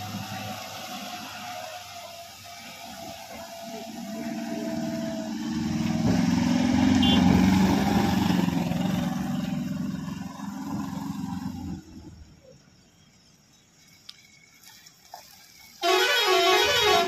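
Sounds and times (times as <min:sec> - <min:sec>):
van engine driving past: 0:00.0 - 0:12.2.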